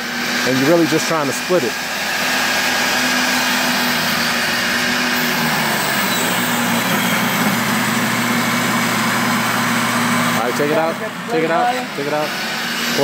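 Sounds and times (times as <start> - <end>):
table saw ripping board: 0.0 - 9.5.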